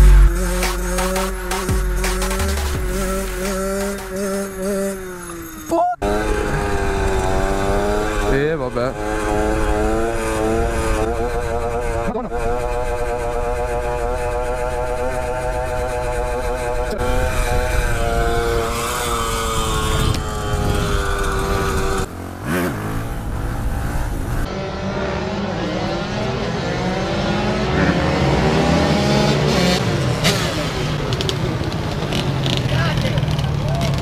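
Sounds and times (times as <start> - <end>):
motorcycle engine revving: 0.0 - 34.0
rushing wind noise: 15.7 - 22.1.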